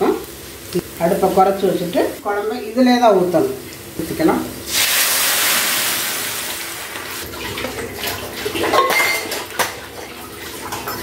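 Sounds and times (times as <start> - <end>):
gravy sizzling in a pan: 0.0 - 7.7.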